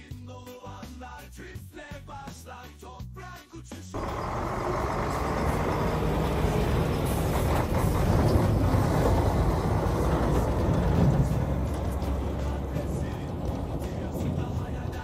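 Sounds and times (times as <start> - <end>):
dump truck rumbling past: 4.0 - 15.0.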